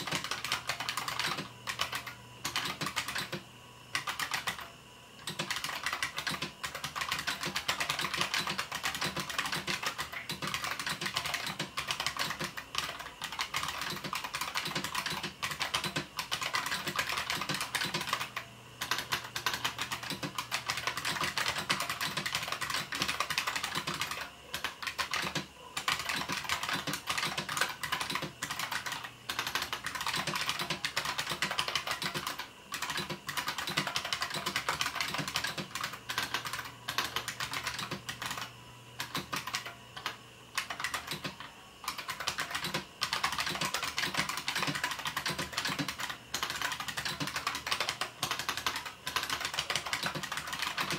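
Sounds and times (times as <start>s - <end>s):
fast keyboard typing: 0.0s - 50.9s.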